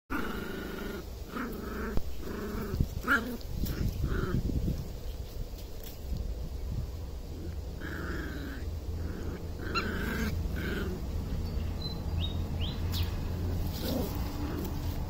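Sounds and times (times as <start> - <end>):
rustle of dry leaves: 0.1 - 15.0
steady low rumble: 0.2 - 15.0
puppies yelping and whining: 8.3 - 11.1.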